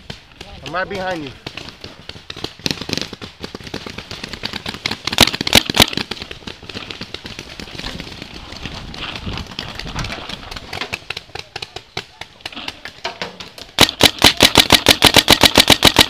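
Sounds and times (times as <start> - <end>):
loud sharp cracks: 2.3 - 7.2, 13.8 - 16.0.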